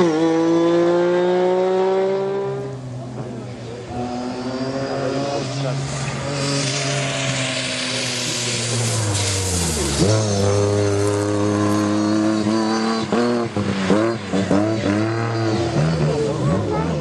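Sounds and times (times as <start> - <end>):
car engine revving hard: 0.0 - 2.8, 3.9 - 17.0
tyres hissing on wet track: 4.0 - 16.0.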